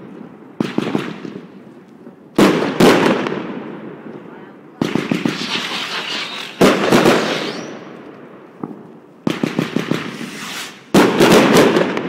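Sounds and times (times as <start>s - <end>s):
firework bangs: 4.8s - 12.0s
firework crackling: 4.8s - 12.0s
rising firework whistle: 5.1s - 8.1s, 10.0s - 10.9s.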